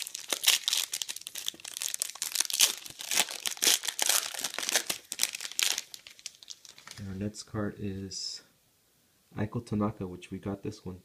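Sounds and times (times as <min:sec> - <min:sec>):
foil pack tearing and crinkling: 0:00.0 - 0:07.0.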